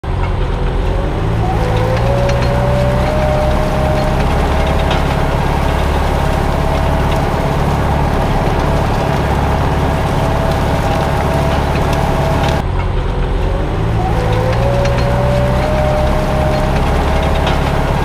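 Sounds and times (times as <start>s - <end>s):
diesel tractor engine under load: 0.0s - 18.0s
high-pitched whine: 0.1s - 18.0s.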